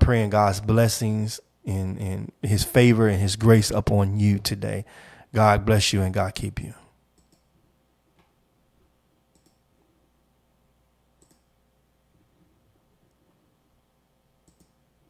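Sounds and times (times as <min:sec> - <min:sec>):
room hum: 0:00.0 - 0:15.0
computer mouse clicks: 0:07.2 - 0:07.5, 0:09.3 - 0:09.6, 0:11.2 - 0:11.5, 0:14.4 - 0:14.8.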